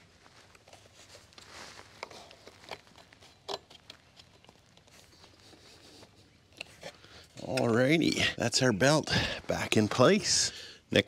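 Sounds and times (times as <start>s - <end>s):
faint clicks and rustling: 0.0s - 8.0s.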